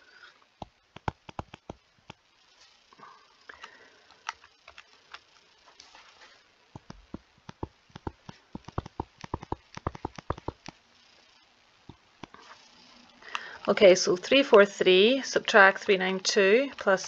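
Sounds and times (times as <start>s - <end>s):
stylus tapping on tablet screen: 0.6s - 2.2s, 6.8s - 10.8s.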